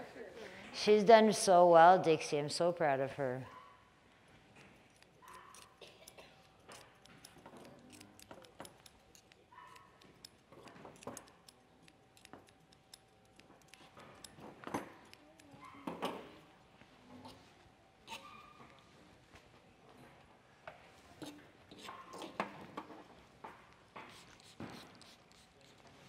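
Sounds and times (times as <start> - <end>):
grooming tools clicking and clinking: 4.5 - 16.5.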